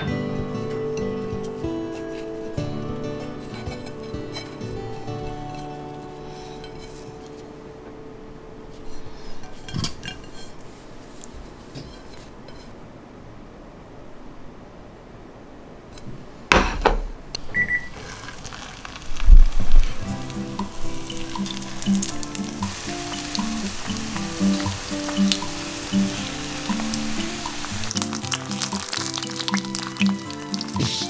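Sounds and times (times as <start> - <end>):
background music with steady beat: 0.0 - 8.2, 20.0 - 31.0
spring rolls sizzling in oil: 17.9 - 31.0.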